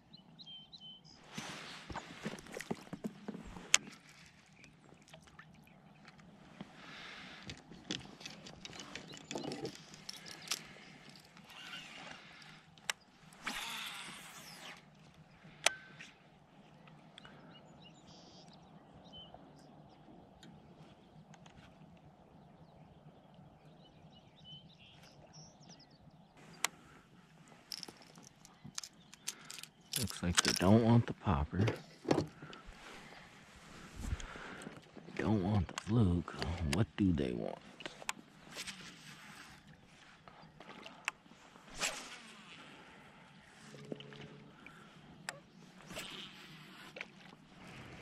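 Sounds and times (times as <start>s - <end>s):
faint bird chirps: 0.0s - 2.2s
water splashing and trickling: 1.5s - 6.4s
fishing tackle clicks and knocks: 7.4s - 11.5s, 27.6s - 32.6s.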